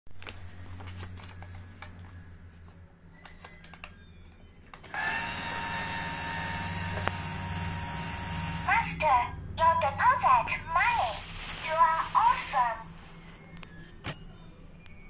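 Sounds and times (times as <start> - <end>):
paper crinkling: 0.1 - 3.9
small motor whirring: 4.9 - 8.7.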